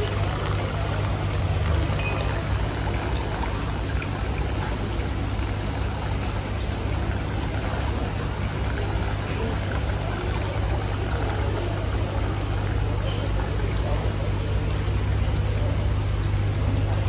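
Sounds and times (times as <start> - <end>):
water splashing and bubbling: 0.0 - 17.0.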